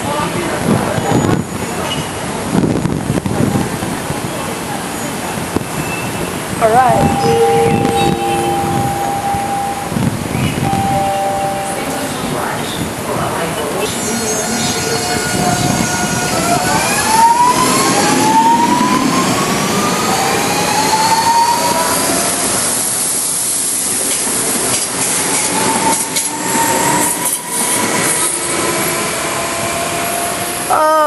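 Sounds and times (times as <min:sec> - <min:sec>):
train wheels on rails: 0:00.2 - 0:30.8.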